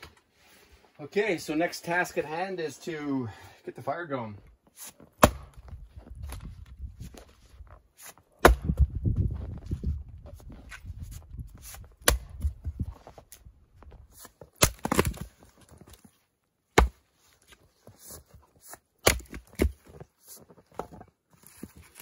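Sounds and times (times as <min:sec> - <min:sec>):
axe chopping firewood: 0:04.8 - 0:06.5, 0:08.0 - 0:09.0, 0:11.6 - 0:12.6, 0:14.2 - 0:16.0, 0:16.7 - 0:17.1, 0:18.6 - 0:20.0.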